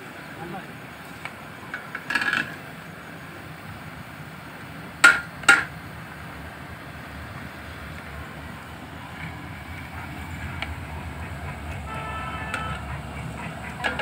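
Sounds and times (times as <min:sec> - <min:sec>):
steady low rumble: 0:05.7 - 0:14.0.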